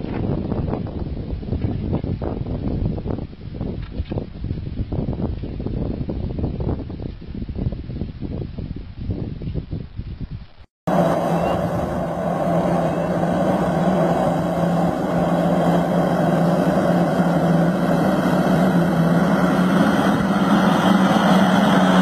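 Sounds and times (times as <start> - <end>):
pickup engine running under load: 10.9 - 22.0.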